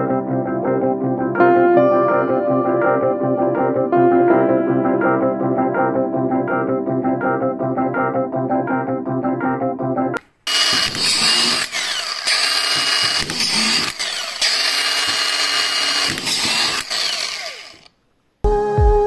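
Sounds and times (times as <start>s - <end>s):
screwdriver clicks: 10.5s - 17.9s
screwdriver motor whine: 10.5s - 17.9s.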